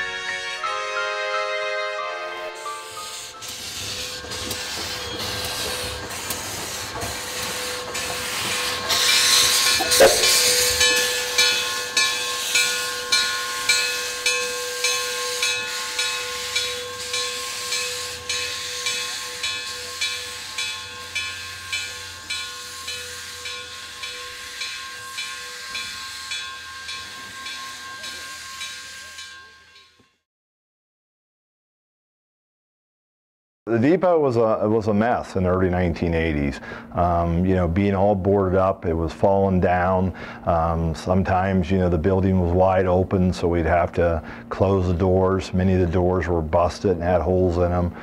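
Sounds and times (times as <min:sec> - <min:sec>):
steam locomotive exhaust chuffs: 0:00.2 - 0:30.0, 0:34.6 - 0:48.0
loud hiss of steam: 0:02.6 - 0:29.2.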